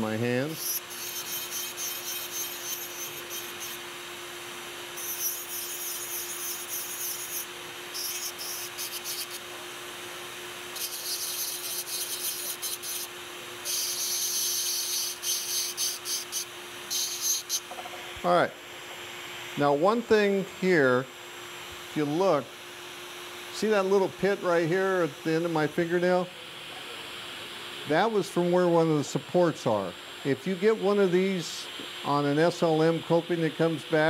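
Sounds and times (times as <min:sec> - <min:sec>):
steady hum: 0:00.0 - 0:34.0
dental bur grinding metal: 0:00.3 - 0:03.8, 0:05.0 - 0:09.4, 0:10.8 - 0:17.7.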